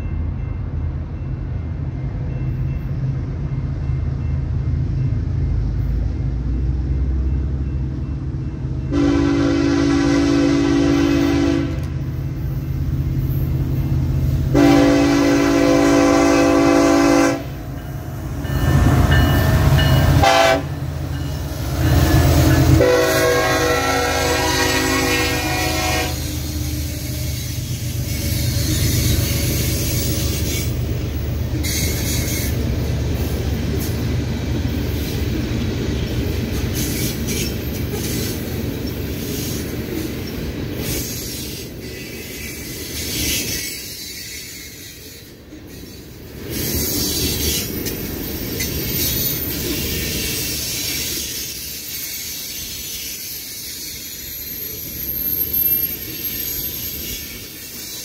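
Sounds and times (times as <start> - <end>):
diesel locomotive rumble: 0.0 - 58.0
train air horn blasts: 8.9 - 12.0, 14.5 - 17.6, 18.7 - 20.9, 21.5 - 30.7
train wheels clattering on rails: 17.5 - 58.0.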